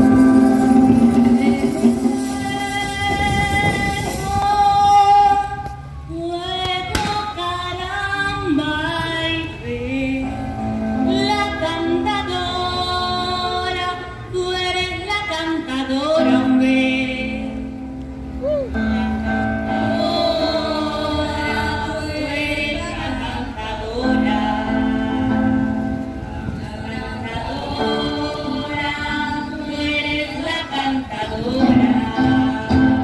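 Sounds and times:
musical accompaniment: 0.0s - 6.0s, 16.2s - 33.0s
woman singing into a microphone: 0.0s - 17.8s, 18.4s - 33.0s
sharp knock: 6.9s - 7.2s.

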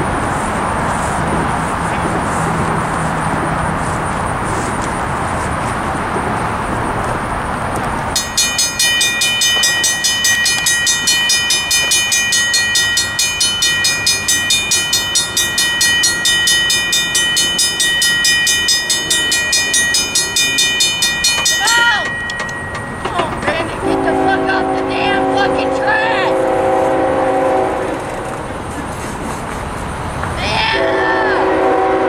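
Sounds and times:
steady rushing background noise: 0.0s - 26.5s, 27.8s - 30.8s
mechanical crossing bell ringing: 8.1s - 24.4s.

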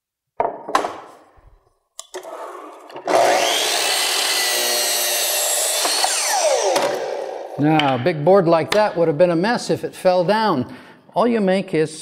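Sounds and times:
miter saw cutting board: 2.2s - 7.6s.

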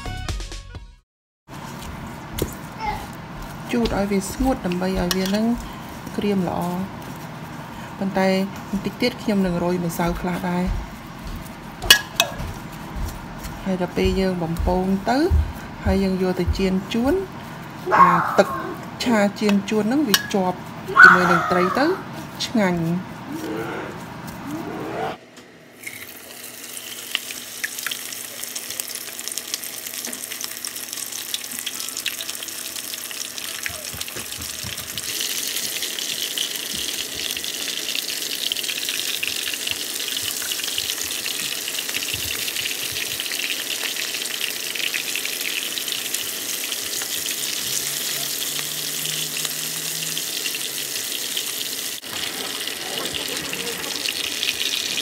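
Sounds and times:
fish sizzling in hot oil: 25.8s - 55.0s.

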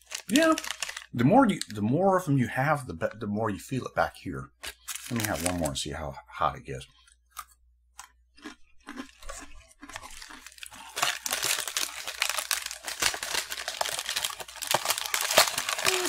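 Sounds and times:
snack packet rustling and crinkling: 0.0s - 1.8s, 4.6s - 5.8s, 8.0s - 16.0s
faint crunching of chewing: 6.8s - 16.0s.

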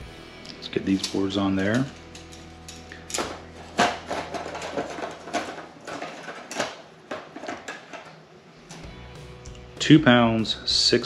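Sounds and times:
circuit boards clattering: 0.6s - 8.9s.

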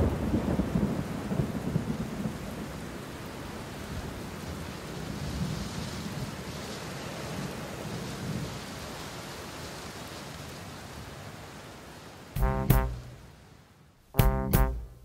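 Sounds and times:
low rolling thunder: 0.0s - 3.0s
steady rain: 0.0s - 15.0s.

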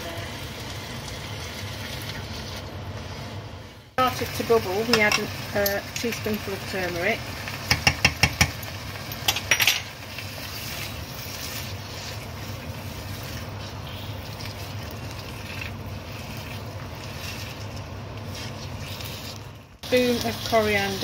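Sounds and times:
curry sizzling and bubbling: 0.0s - 21.0s
utensil clicking on frying pan: 7.6s - 9.9s.

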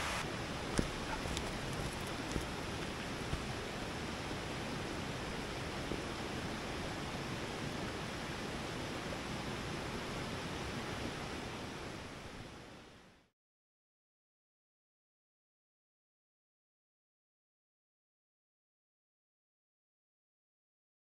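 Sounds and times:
stream rushing over stones: 0.0s - 11.4s.

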